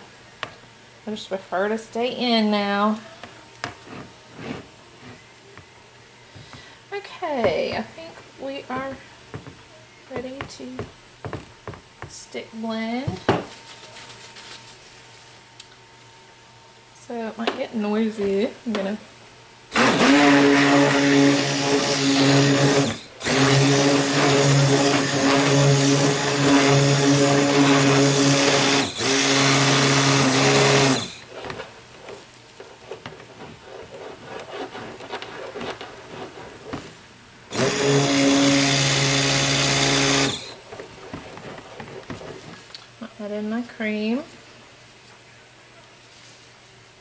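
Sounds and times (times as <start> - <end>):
stick blender running: 19.7 - 36.9, 37.5 - 42.6.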